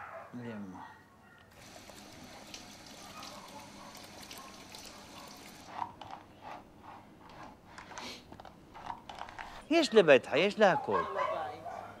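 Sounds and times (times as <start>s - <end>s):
dog barking: 0.0s - 1.5s, 2.3s - 5.6s, 10.6s - 12.0s
tap water running: 1.5s - 5.7s.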